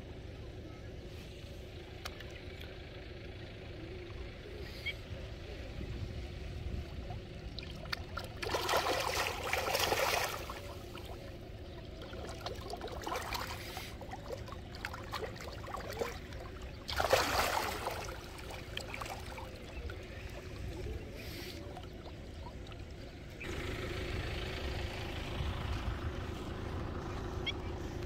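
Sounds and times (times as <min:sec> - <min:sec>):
fish splashing at water surface: 0:07.2 - 0:22.9.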